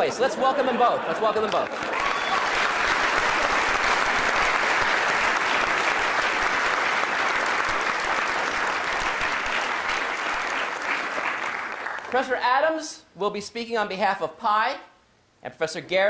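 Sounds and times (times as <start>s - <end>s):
audience applause: 0.6s - 12.2s.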